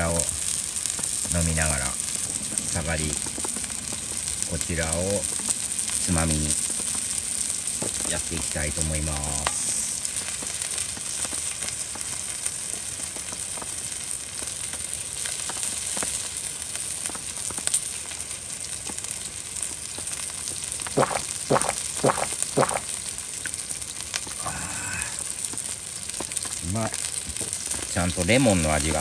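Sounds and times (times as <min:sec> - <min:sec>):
meat sizzling on a griddle: 0:00.0 - 0:29.0
gulps drinking from a can: 0:20.9 - 0:22.9.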